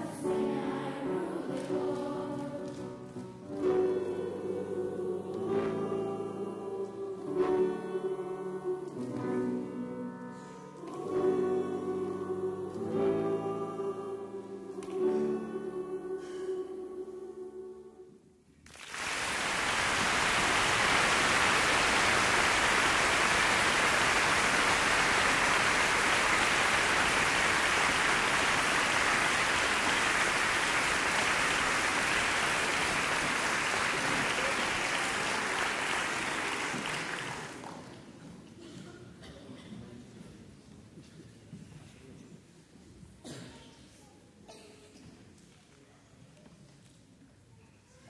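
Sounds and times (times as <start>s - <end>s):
children's choir singing: 0.0s - 18.3s, 18.9s - 39.3s
audience applause: 18.7s - 38.0s.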